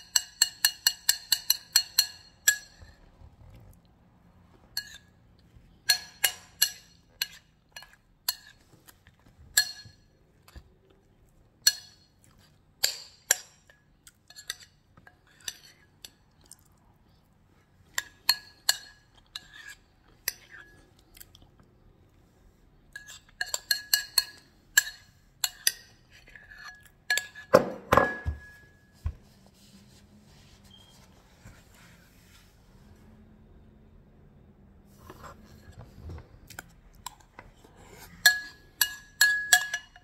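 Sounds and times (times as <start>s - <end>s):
metal spoon clinking ceramic bowl: 0.0s - 3.0s, 5.8s - 8.6s, 9.6s - 10.1s, 23.0s - 26.0s, 38.0s - 40.0s.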